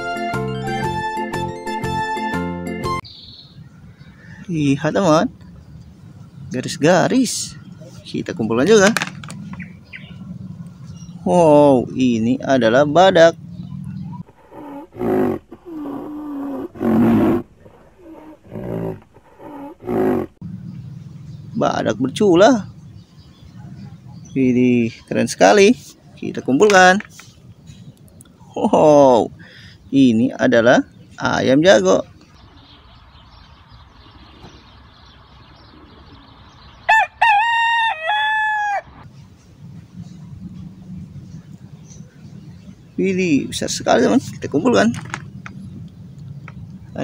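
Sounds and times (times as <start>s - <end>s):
rhinoceros calling: 7.6s - 20.9s
rooster crowing: 36.9s - 39.0s.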